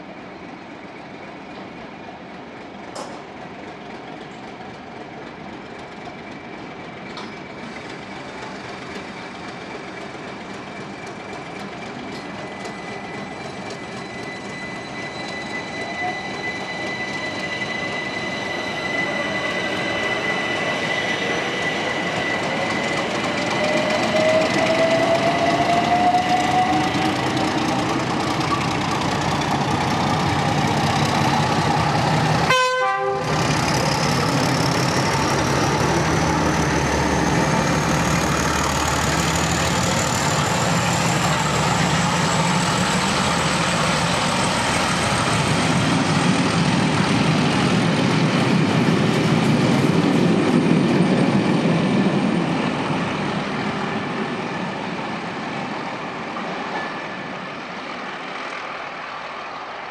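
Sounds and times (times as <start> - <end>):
diesel locomotive engine working: 0.0 - 59.9
two-tone train horn: 32.4 - 33.4.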